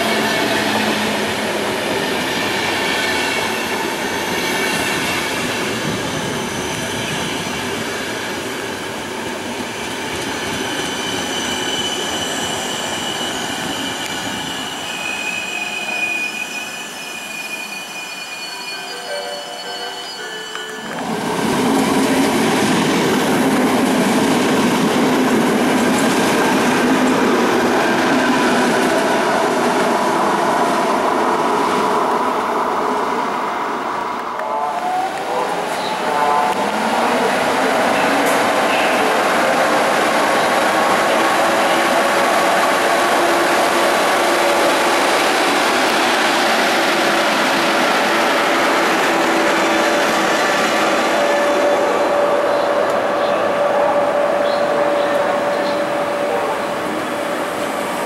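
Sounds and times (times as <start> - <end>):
train wheels rumbling on rail: 0.0 - 17.1, 19.1 - 58.0
train wheel squeal: 2.0 - 8.4, 9.8 - 21.2, 41.0 - 58.0.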